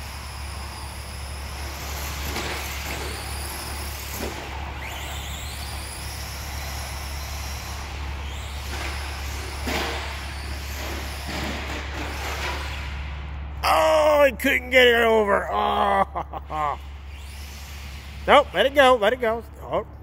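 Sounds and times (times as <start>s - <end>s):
electric motor whining: 0.0s - 13.0s, 16.7s - 18.7s
steady low hum: 0.0s - 20.0s.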